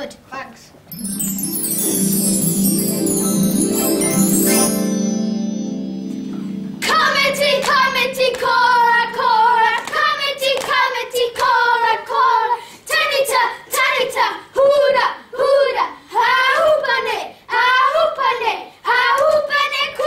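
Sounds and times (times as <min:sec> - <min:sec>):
held keyboard chord: 0:00.9 - 0:10.2
children singing: 0:06.8 - 0:11.2.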